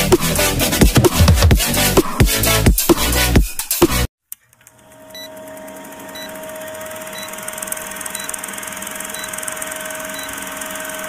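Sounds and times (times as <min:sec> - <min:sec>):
film projector whirring rattle: 0:04.9 - 0:11.0.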